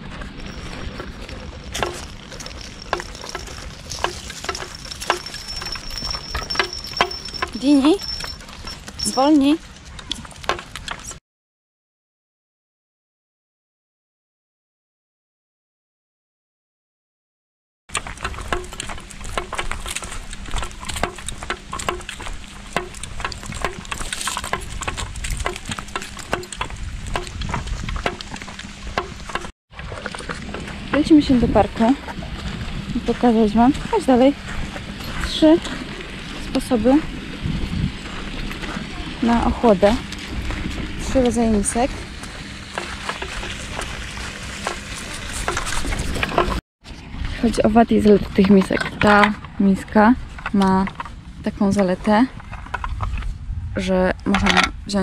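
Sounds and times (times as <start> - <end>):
footsteps on leaves and asphalt: 0.0 - 6.1, 18.0 - 30.9, 32.0 - 46.6
wind rumble on microphone: 0.0 - 11.2, 18.0 - 55.0
footsteps on asphalt: 31.8 - 46.6.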